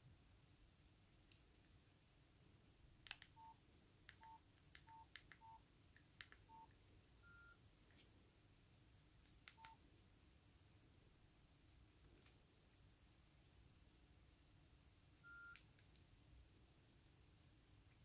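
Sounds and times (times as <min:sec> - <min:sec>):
phone keypad beeps: 0:03.4 - 0:03.6, 0:04.2 - 0:05.6, 0:06.4 - 0:07.6, 0:09.6 - 0:09.8, 0:15.2 - 0:15.6.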